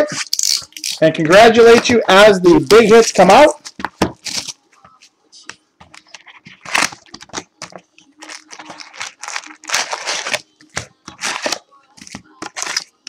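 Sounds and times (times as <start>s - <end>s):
packaging crinkling and tearing: 2.6s - 4.6s, 6.5s - 7.5s, 8.2s - 11.6s, 12.4s - 13.0s.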